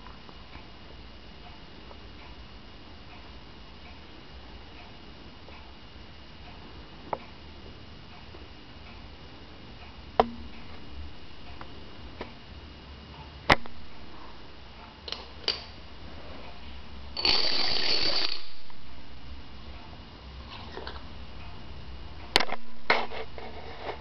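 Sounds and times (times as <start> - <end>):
dominoes toppling on wooden floor: 17.2 - 18.5.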